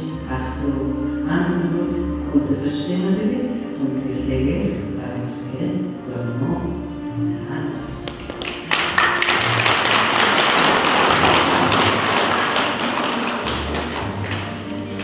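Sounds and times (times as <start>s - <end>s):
quiet music: 0.0s - 15.0s
people clapping: 8.1s - 15.0s.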